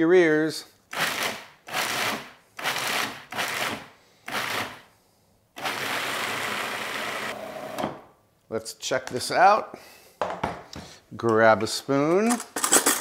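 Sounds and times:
food processor chopping and grinding: 0:00.9 - 0:04.8, 0:05.6 - 0:07.8.

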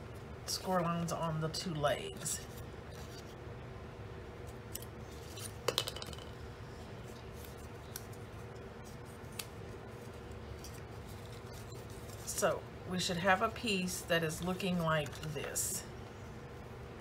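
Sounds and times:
hard object clattering: 0:05.6 - 0:06.4.

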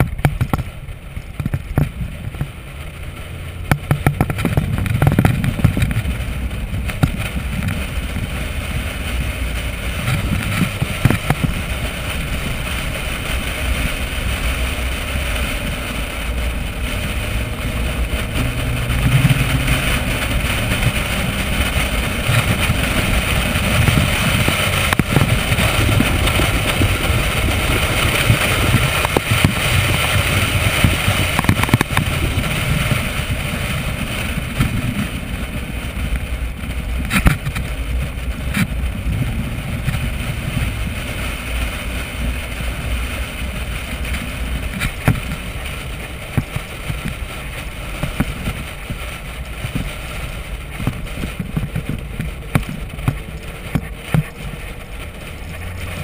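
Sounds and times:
car engine at speed: 0:00.0 - 0:56.0
wind on microphone: 0:00.0 - 0:56.0.

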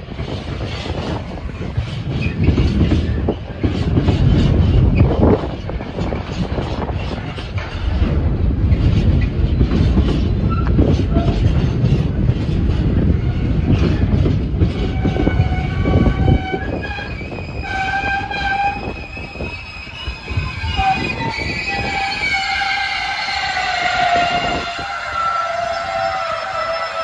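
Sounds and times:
freight train rumbling past: 0:00.0 - 0:27.0
wheels clacking over rail joints: 0:00.2 - 0:27.0
high-pitched squealing: 0:14.8 - 0:27.0.

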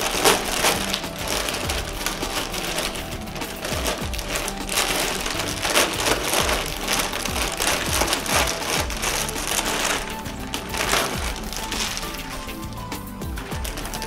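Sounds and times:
background music: 0:00.0 - 0:14.0
plastic bag crinkling: 0:00.0 - 0:14.0.

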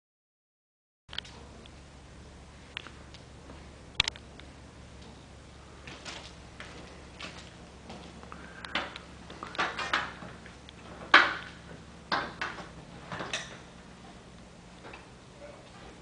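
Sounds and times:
knocks and clatters on ladder: 0:05.9 - 0:13.7.

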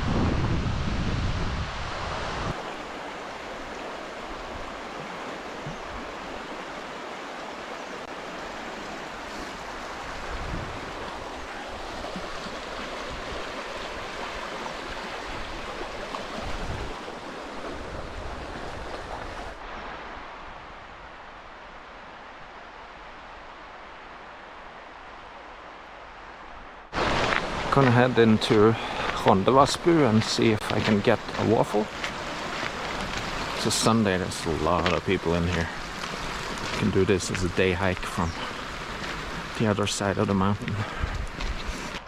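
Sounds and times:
wind buffeting microphone: 0:00.0 - 0:02.6, 0:09.6 - 0:19.6, 0:40.6 - 0:42.0
stream flowing over stones: 0:02.1 - 0:20.1, 0:26.9 - 0:42.0.

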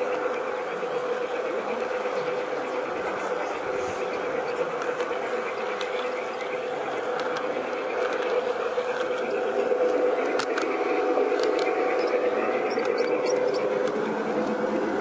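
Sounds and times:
model train motor whirring: 0:00.0 - 0:15.0
sharp clicks: 0:10.2 - 0:14.6.

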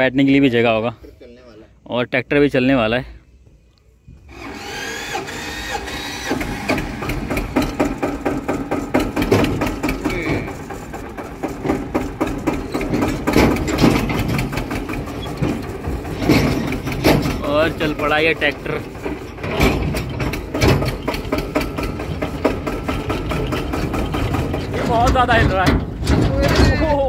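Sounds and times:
diesel tractor engine clattering: 0:04.2 - 0:27.0.

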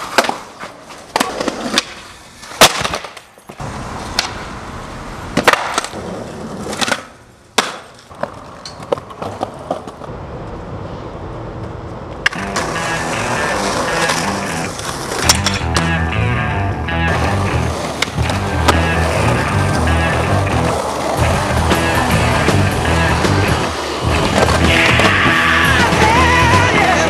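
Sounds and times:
skateboard clacks on ground: 0:00.0 - 0:04.4, 0:05.4 - 0:10.1, 0:11.6 - 0:16.0, 0:17.9 - 0:19.0
skateboard wheels rolling: 0:00.0 - 0:27.0.

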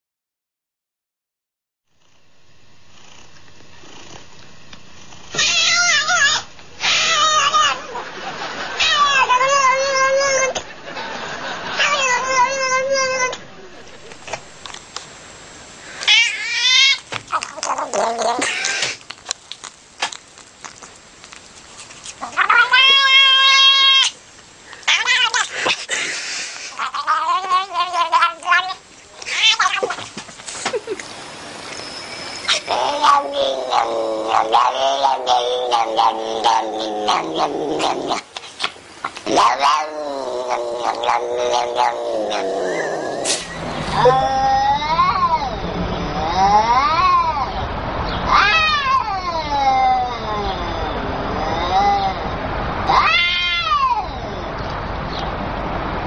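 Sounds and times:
cat meowing: 0:05.4 - 0:07.9, 0:08.8 - 0:10.6, 0:11.8 - 0:13.4, 0:16.0 - 0:19.0, 0:22.2 - 0:24.2, 0:24.9 - 0:25.5, 0:26.8 - 0:30.0, 0:32.4 - 0:38.2, 0:39.4 - 0:43.2, 0:43.8 - 0:47.6, 0:48.3 - 0:52.2, 0:52.9 - 0:54.5.

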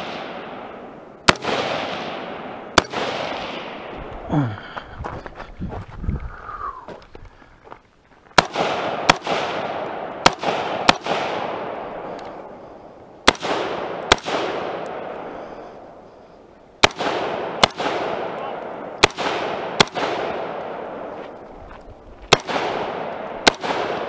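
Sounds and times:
rifle shots with echo: 0:00.0 - 0:04.2, 0:08.4 - 0:16.0, 0:16.8 - 0:21.4, 0:22.3 - 0:24.0.

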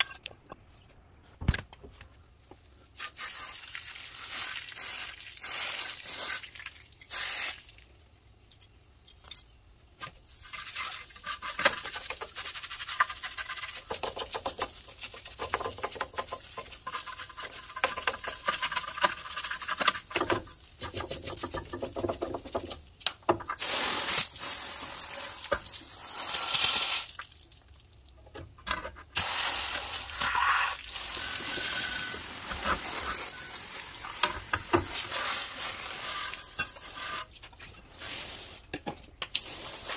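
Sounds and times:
water spraying from hose: 0:03.0 - 0:07.8, 0:10.3 - 0:18.4, 0:23.6 - 0:27.6, 0:29.2 - 0:37.3, 0:38.0 - 0:38.6, 0:39.3 - 0:39.9
stiff brush scrubbing metal: 0:11.1 - 0:21.5.

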